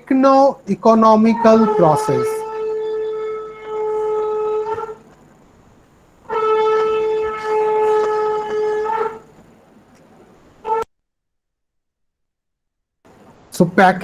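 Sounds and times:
horn blasts: 0:06.2 - 0:09.2.

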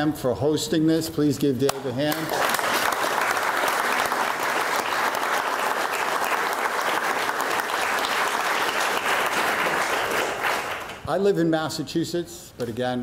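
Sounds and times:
crowd applauding: 0:02.1 - 0:11.0.

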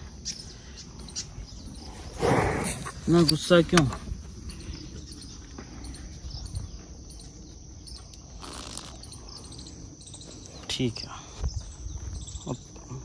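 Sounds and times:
high insect drone: 0:00.0 - 0:13.0
small bird chirps: 0:00.2 - 0:01.9, 0:04.5 - 0:13.0.

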